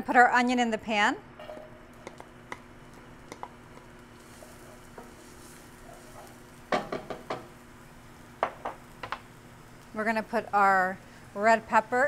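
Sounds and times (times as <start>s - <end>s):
onion sizzling in oil: 1.5s - 12.0s
spatula knocking against pan: 6.7s - 7.5s.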